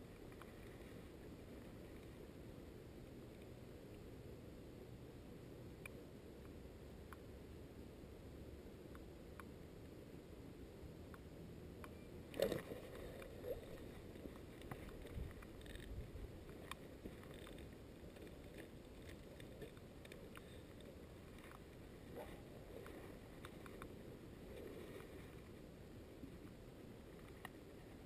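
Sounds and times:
fishing rod clicks and rustles: 12.3s - 25.6s.

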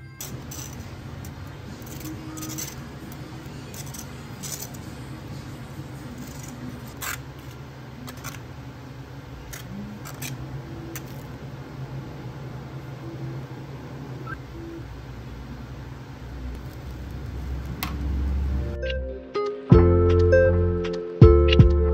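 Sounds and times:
small hard objects clinking: 0.0s - 5.0s
low equipment hum: 0.0s - 21.9s.

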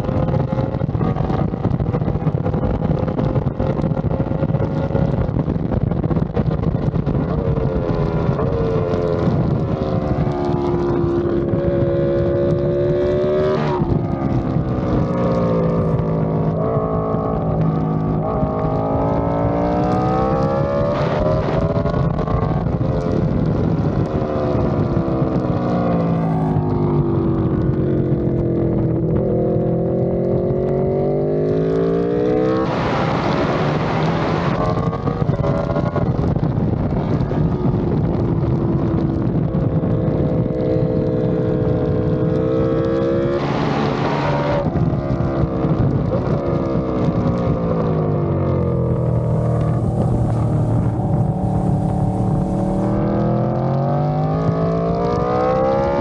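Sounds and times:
motorcycle engine revving: 0.0s - 56.0s
wind rushing: 31.8s - 56.0s.

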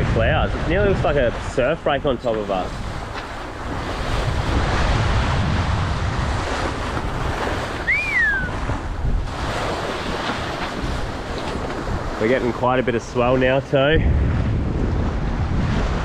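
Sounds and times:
choppy sea water rushing: 0.0s - 16.0s
wind buffeting microphone: 0.0s - 16.0s
short whistle: 7.8s - 8.6s.

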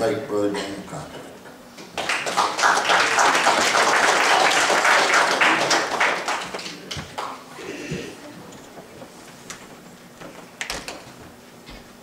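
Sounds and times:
congregation applauding: 1.9s - 7.5s.

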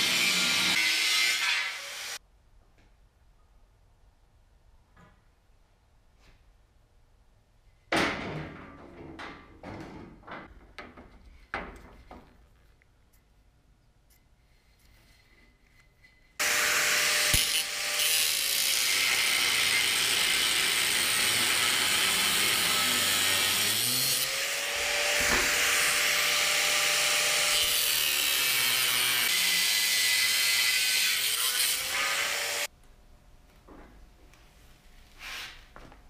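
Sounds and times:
angle grinder cutting metal: 0.0s - 2.2s, 16.4s - 32.7s.

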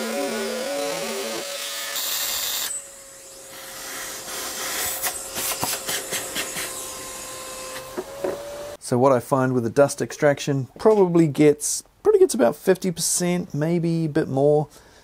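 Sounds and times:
vacuum whine: 0.0s - 8.8s.

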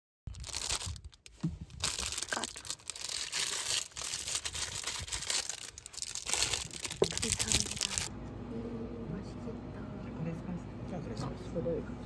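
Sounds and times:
crinkling and rustling: 0.3s - 8.1s.

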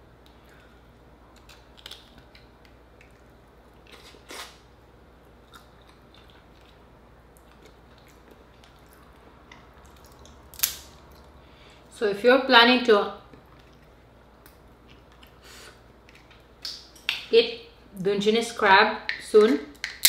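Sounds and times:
chewing: 5.4s - 10.4s, 13.3s - 16.7s.

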